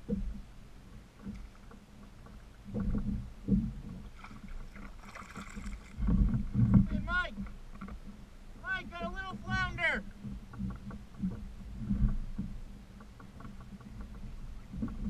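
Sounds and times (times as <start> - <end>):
small waves slapping hull: 0.0 - 15.0
dull thumps on kayak: 2.7 - 8.0.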